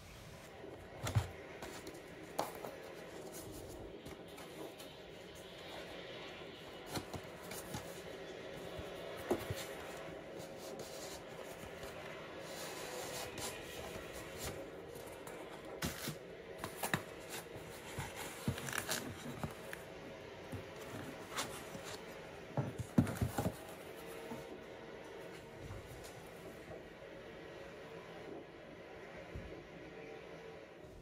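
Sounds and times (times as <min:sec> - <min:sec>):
rustling cardboard and plastic: 0:00.2 - 0:24.4.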